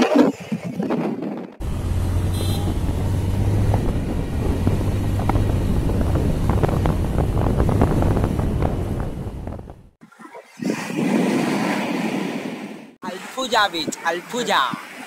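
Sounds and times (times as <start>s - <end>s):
wind noise on microphone: 0.0s - 10.0s
motorcycle engine running: 1.6s - 9.9s.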